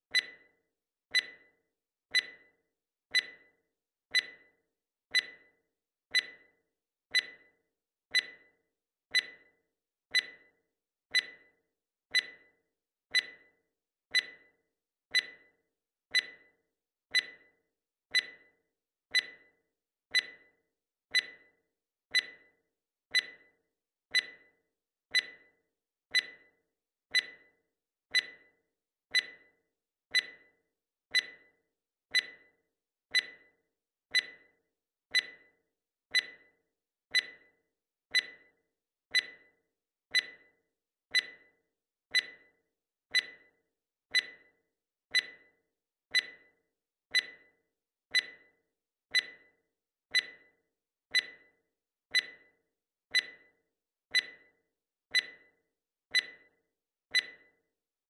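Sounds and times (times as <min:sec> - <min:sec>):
digital timer beeping: 0:00.1 - 0:57.7.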